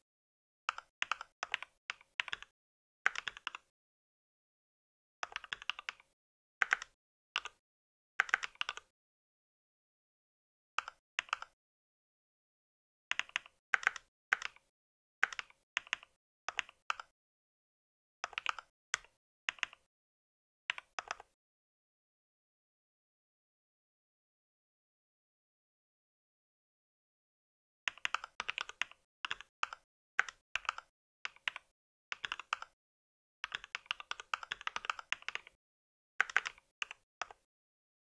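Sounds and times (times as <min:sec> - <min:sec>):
mechanical keyboard typing: 0:00.7 - 0:02.5, 0:03.1 - 0:03.7, 0:05.2 - 0:07.6, 0:08.2 - 0:08.9, 0:10.8 - 0:11.6, 0:13.1 - 0:17.1, 0:18.2 - 0:19.9, 0:27.9 - 0:32.8, 0:33.4 - 0:35.6, 0:36.2 - 0:37.4.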